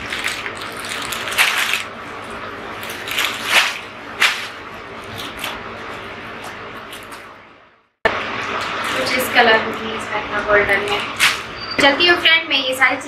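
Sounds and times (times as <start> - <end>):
plastic packaging crinkling: 0.0 - 5.7.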